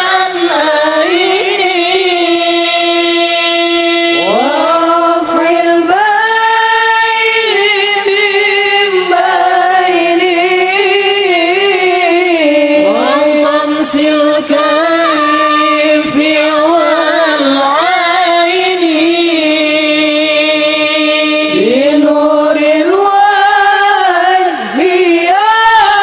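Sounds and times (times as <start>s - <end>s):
male voice singing into microphone: 0.0s - 26.0s.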